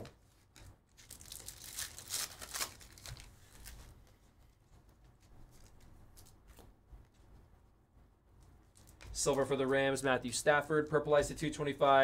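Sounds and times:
cards rustling and ticking: 0.4s - 7.2s, 8.4s - 11.5s
wrapper crinkling and tearing: 0.6s - 4.0s.

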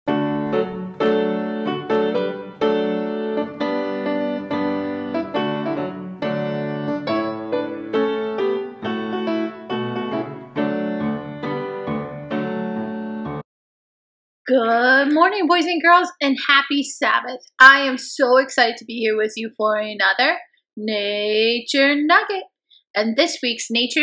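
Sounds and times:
piano chords: 0.1s - 13.4s.

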